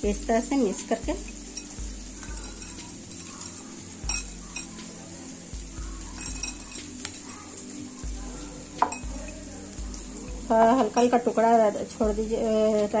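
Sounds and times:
onions sizzling in oil: 0.0 - 13.0
glass bowl clinking: 1.3 - 4.9, 6.1 - 7.4, 8.8 - 9.4, 10.8 - 11.4.

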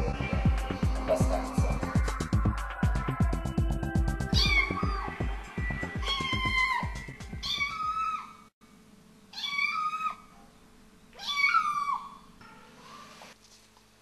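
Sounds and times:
thudding music beat: 0.0 - 7.6
meow-like calls: 4.4 - 5.1, 5.9 - 8.4, 9.4 - 10.3, 11.2 - 12.3.

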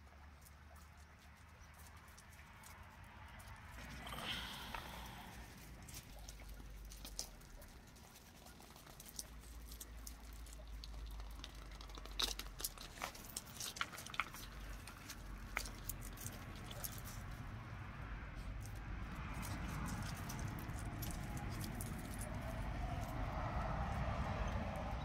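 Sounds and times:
plastic balls tapping on concrete: 8.8 - 16.6.

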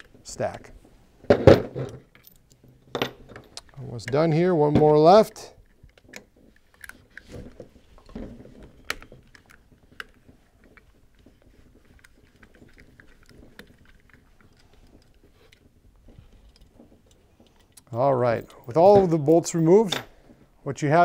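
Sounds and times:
light handling noises: 0.0 - 21.0.

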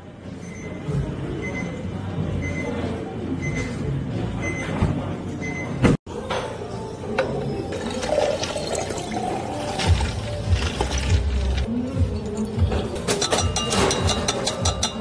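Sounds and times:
water pouring over ice: 7.8 - 11.7.

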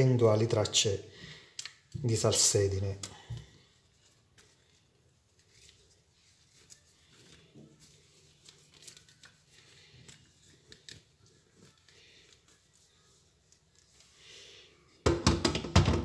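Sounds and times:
cloth wiping fishing reel: 3.7 - 15.0.

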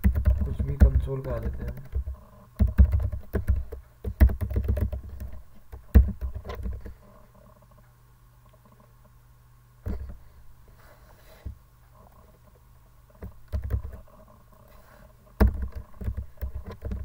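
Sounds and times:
keyboard typing: 0.0 - 6.9, 13.2 - 14.2, 15.4 - 17.0
faint low hum: 0.0 - 17.0.

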